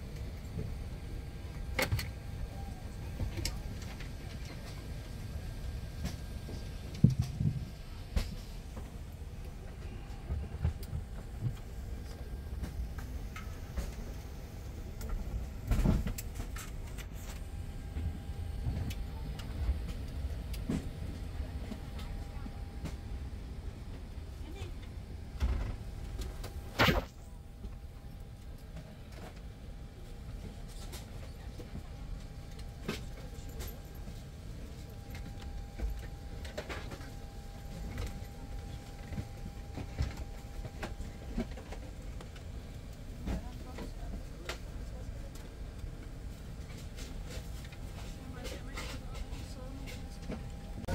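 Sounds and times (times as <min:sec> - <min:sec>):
airliner cabin rumble: 0:00.0 - 0:50.9.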